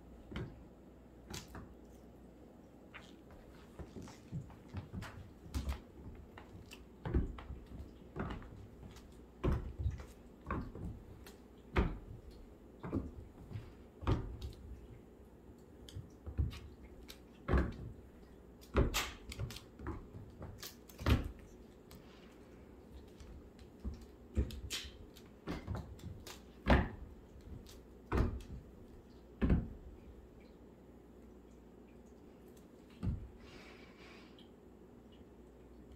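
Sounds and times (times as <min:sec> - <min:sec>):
kitten paws on hardwood floor: 0:02.9 - 0:14.9.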